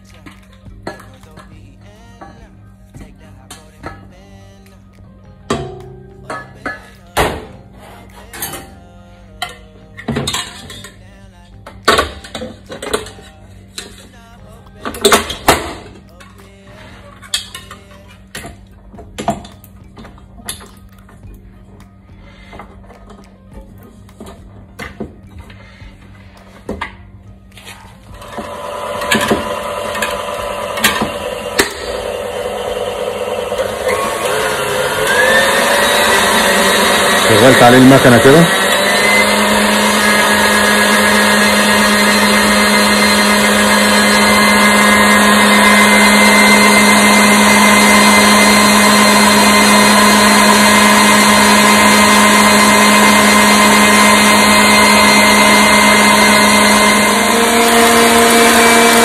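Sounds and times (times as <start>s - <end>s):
background music: 0.0s - 59.0s
stand mixer whisking: 28.2s - 59.0s.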